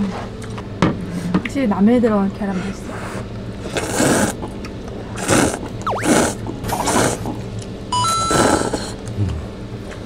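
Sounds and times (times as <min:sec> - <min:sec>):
noodles slurped loudly: 0:03.7 - 0:04.4, 0:05.2 - 0:07.4
rising electronic chime: 0:05.8 - 0:06.4, 0:08.0 - 0:08.4.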